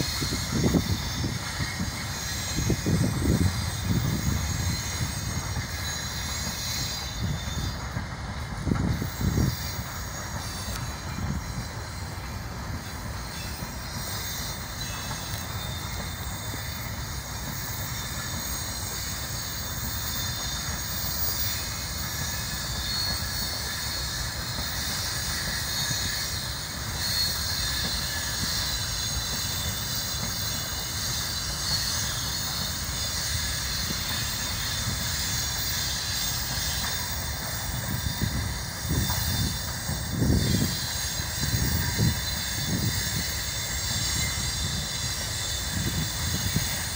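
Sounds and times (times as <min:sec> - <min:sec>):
high hiss: 0:00.0 - 0:46.9
train wheels rumbling on rails: 0:00.0 - 0:46.9.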